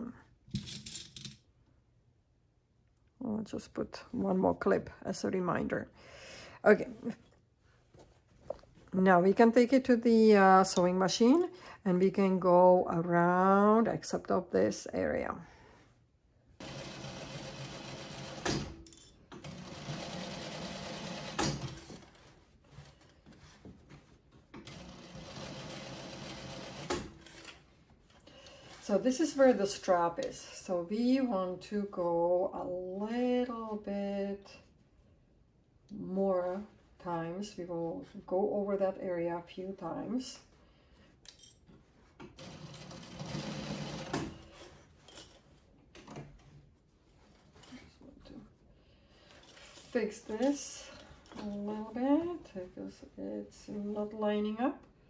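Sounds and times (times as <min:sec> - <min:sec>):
fabric rustling: 0:06.8 - 0:09.3, 0:21.8 - 0:24.6, 0:44.4 - 0:54.3
sewing machine stitching: 0:16.6 - 0:18.7, 0:19.4 - 0:22.0, 0:24.6 - 0:27.4, 0:42.4 - 0:44.6.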